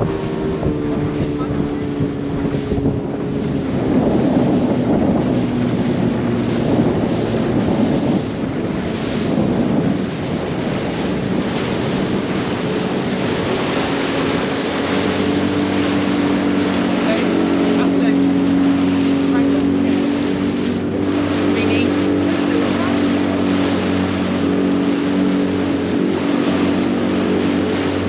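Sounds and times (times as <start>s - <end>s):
boat engine hum: 0.0s - 28.0s
water rushing around boat: 0.0s - 28.0s
wind buffeting microphone: 0.0s - 28.0s.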